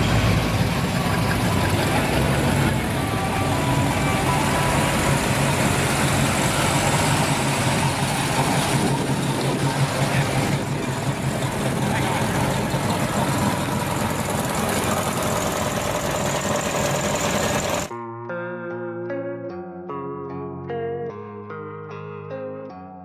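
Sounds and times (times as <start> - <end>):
car engine running at low speed: 0.0 - 17.9.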